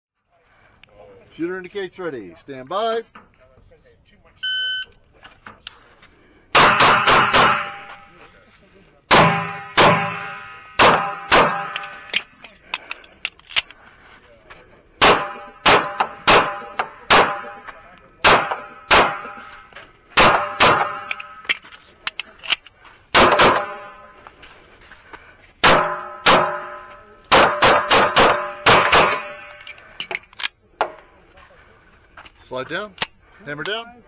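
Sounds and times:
pistol shots: 0:06.5 - 0:08.0, 0:09.1 - 0:12.2, 0:15.0 - 0:19.6, 0:20.2 - 0:21.6, 0:23.1 - 0:24.0, 0:25.6 - 0:29.6.

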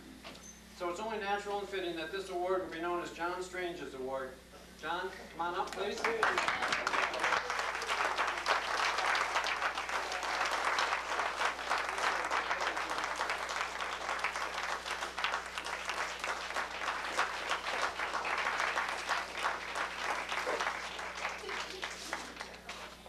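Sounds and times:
audience applauding: 0:05.7 - 0:23.0.

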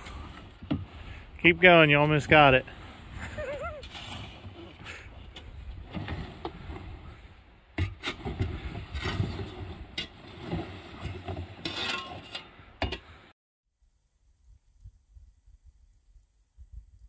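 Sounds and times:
plastic kayak scraping over snow: 0:00.0 - 0:13.2.

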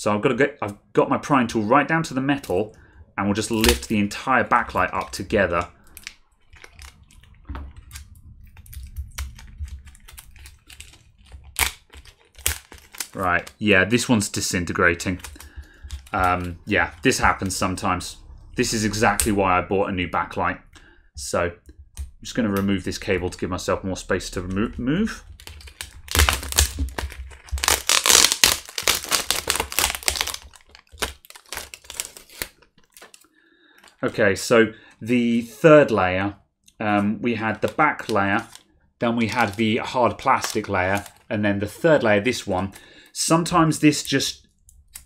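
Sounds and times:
plastic sheets crinkling and tearing: 0:03.4 - 0:17.8, 0:24.2 - 0:34.2, 0:37.4 - 0:42.7.

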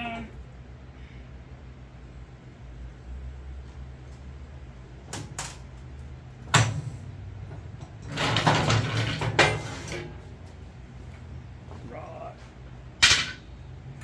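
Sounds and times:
low steady hum: 0:00.0 - 0:14.0
scraping rattling metal: 0:07.8 - 0:10.3.

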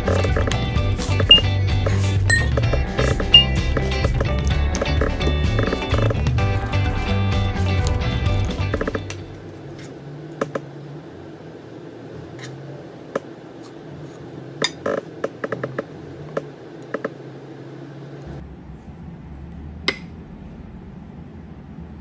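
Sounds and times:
utensils clinking on dishes: 0:02.3 - 0:02.6, 0:03.3 - 0:03.6.

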